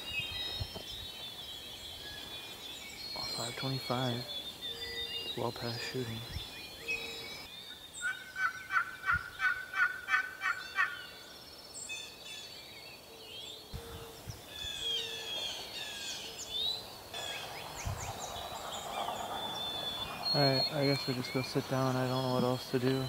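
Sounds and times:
songbirds singing: 0.0s - 23.0s
wild turkey calling: 3.2s - 11.2s, 13.7s - 23.0s.

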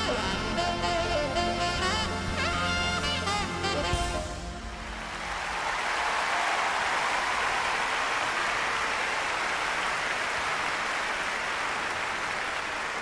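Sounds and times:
large audience applauding: 4.8s - 13.0s.

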